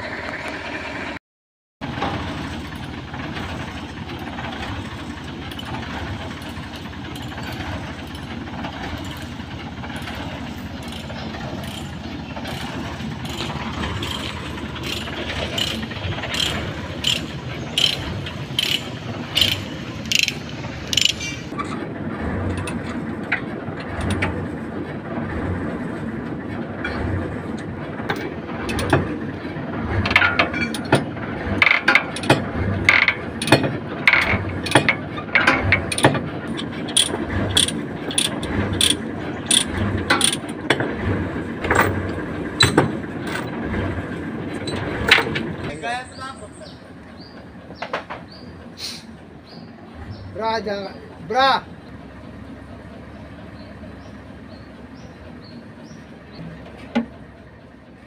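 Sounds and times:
steady low rumble: 0:01.8 - 0:45.7
ratchet chain binder clicking: 0:10.8 - 0:12.6, 0:13.2 - 0:21.5, 0:35.4 - 0:40.6.

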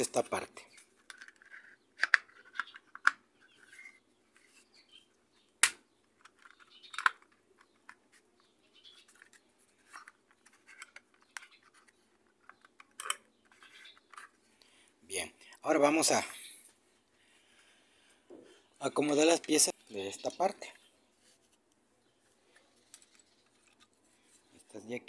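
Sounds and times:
plastic parts clicking and knocking: 0:00.8 - 0:04.0, 0:05.6 - 0:08.2, 0:09.0 - 0:14.4.

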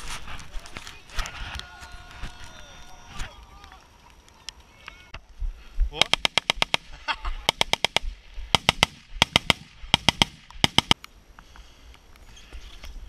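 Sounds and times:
faint outdoor background noise: 0:00.0 - 0:13.0.

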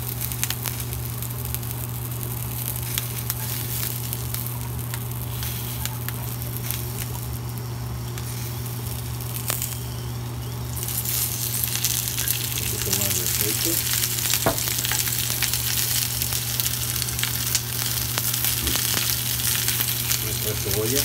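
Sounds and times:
steady low hum: 0:00.0 - 0:21.0
vegetables sizzling in hot oil: 0:00.0 - 0:21.0.

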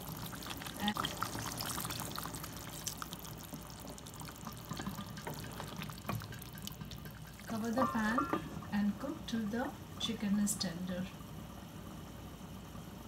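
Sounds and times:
water pouring into sauce: 0:00.0 - 0:07.6.

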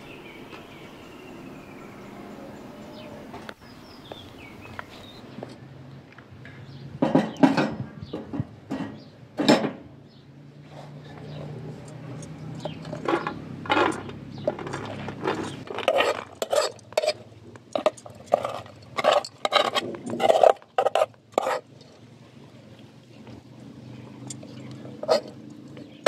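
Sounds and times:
spoon scraping metal pot: 0:10.8 - 0:21.7, 0:25.0 - 0:25.4.

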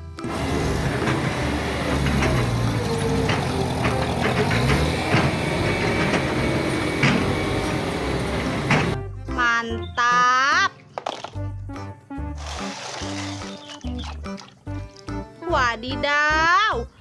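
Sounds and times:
road roller diesel engine: 0:00.0 - 0:09.1
sharp knocks: 0:08.6 - 0:09.0.

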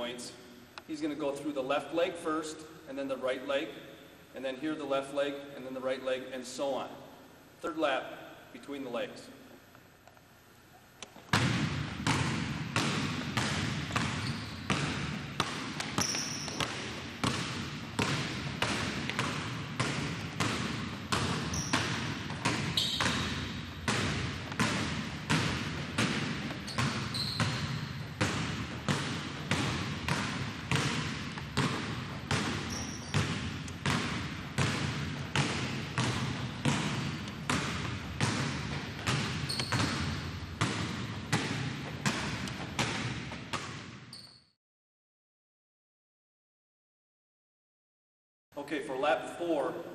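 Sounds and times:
basketballs bouncing on hardwood floor: 0:11.1 - 0:44.2.

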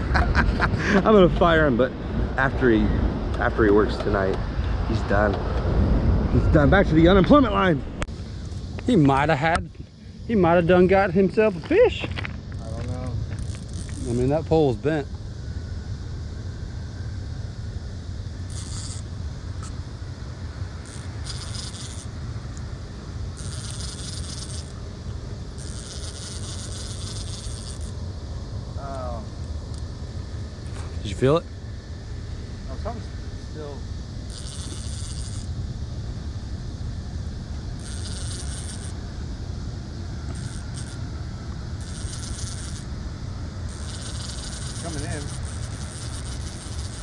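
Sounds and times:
steady low rumble: 0:00.0 - 0:47.0
fishing reel whirring: 0:13.4 - 0:14.2, 0:18.4 - 0:19.7, 0:20.8 - 0:22.2, 0:23.3 - 0:24.8, 0:25.6 - 0:28.0, 0:34.2 - 0:35.6, 0:37.8 - 0:39.0, 0:40.3 - 0:41.0, 0:41.8 - 0:42.9, 0:43.7 - 0:47.0.

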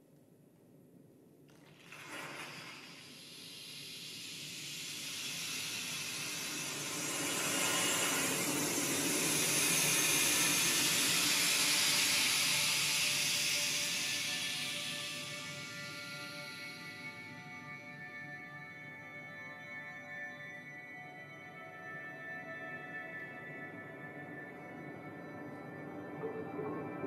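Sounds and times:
hissing noise texture: 0:01.9 - 0:17.0.

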